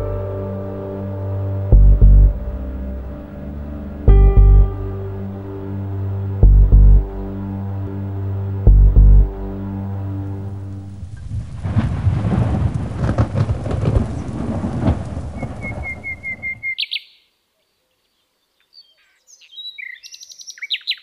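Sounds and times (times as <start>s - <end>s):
rain hiss: 10.8s - 16.1s
rolling thunder: 10.9s - 16.4s
bird chirping: 15.4s - 21.0s.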